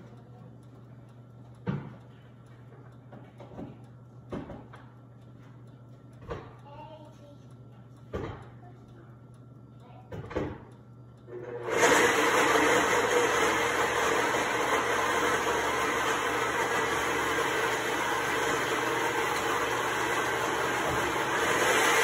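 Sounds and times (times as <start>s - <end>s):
electric mixer grinder running: 11.3s - 22.0s.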